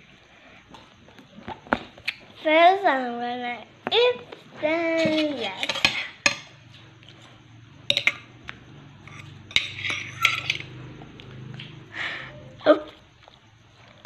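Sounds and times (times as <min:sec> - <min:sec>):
utensils clinking against a dish: 0:05.0 - 0:06.7, 0:07.9 - 0:08.3, 0:09.0 - 0:10.9.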